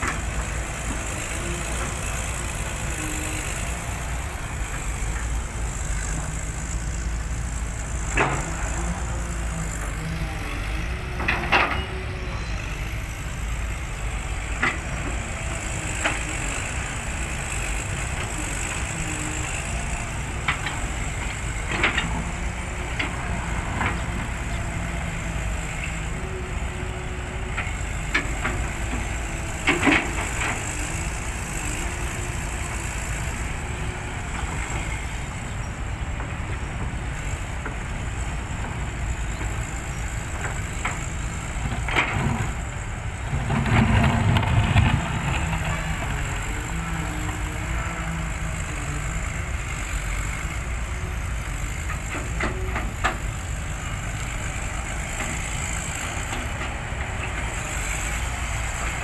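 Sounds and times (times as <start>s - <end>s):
diesel engine running: 0.0s - 59.0s.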